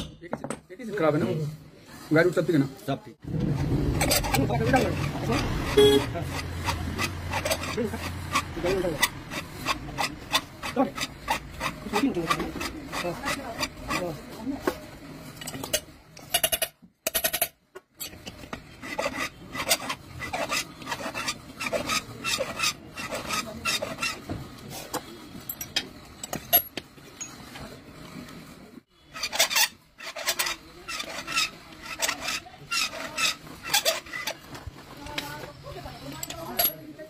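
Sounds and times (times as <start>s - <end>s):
hand tool rasping on metal: 4.0s - 14.4s, 18.0s - 24.3s, 29.0s - 34.7s.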